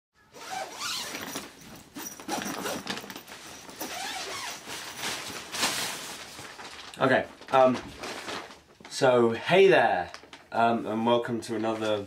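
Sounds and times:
tent fabric rustling: 0:00.3 - 0:09.1.

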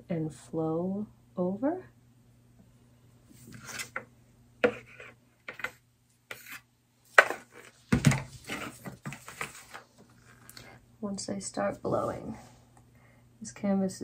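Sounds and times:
stick scraping in plastic bucket: 0:03.4 - 0:10.6.

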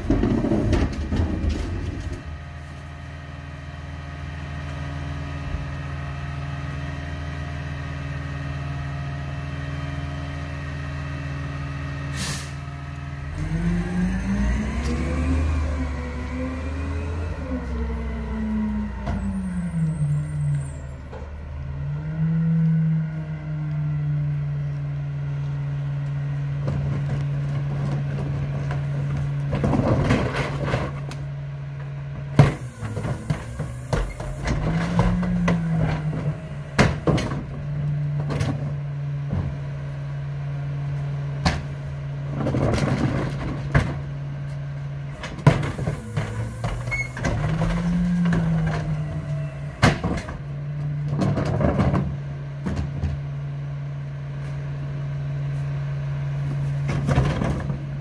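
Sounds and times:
garbage truck engine humming: 0:00.0 - 0:58.0
engine revving: 0:13.1 - 0:24.8.

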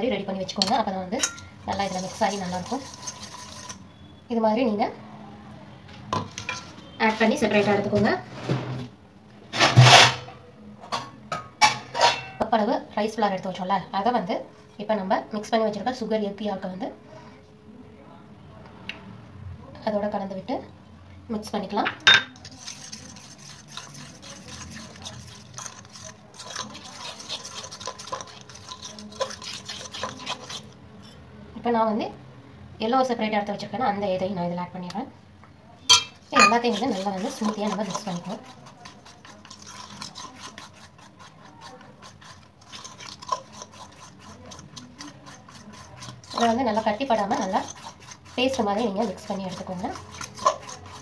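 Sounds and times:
utensil stirring batter in bowl: 0:00.0 - 0:04.2, 0:06.2 - 0:08.6, 0:22.2 - 0:31.2, 0:35.9 - 0:51.0.

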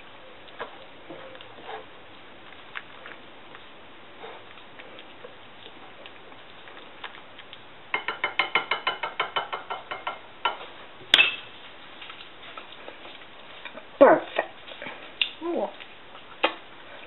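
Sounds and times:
whisk clinking against bowl: 0:08.0 - 0:10.6.

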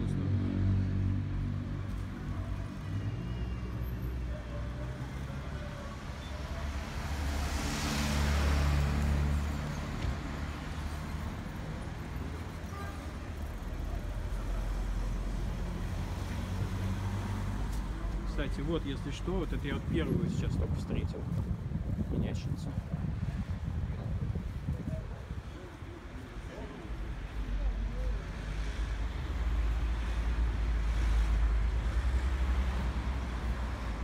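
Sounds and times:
low traffic rumble: 0:00.0 - 0:34.0
car driving past: 0:06.7 - 0:11.2.

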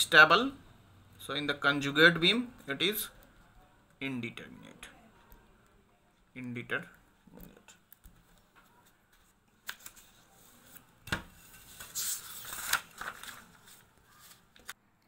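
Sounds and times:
paper rustling and sliding: 0:09.6 - 0:14.8.

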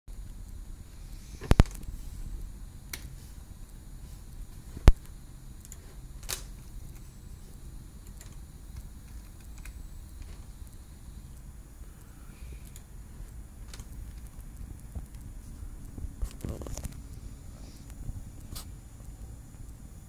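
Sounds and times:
faint low hum: 0:00.1 - 0:20.0
sharp clicks: 0:08.0 - 0:17.1.

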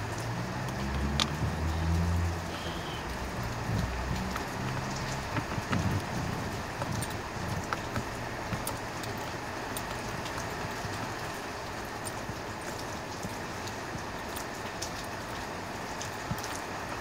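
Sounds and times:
light clicks and rustling: 0:00.6 - 0:02.1, 0:03.3 - 0:16.8
dull bumps: 0:03.4 - 0:08.8.

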